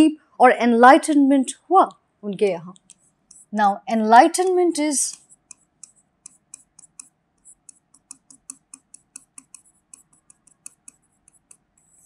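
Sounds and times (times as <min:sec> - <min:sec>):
stylus tapping and scratching: 0:02.7 - 0:03.6, 0:05.0 - 0:12.0.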